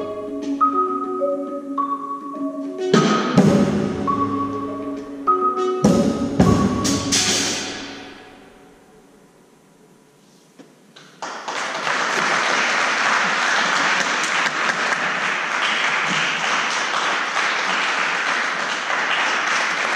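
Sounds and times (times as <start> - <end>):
audience applause: 11.2 - 19.9.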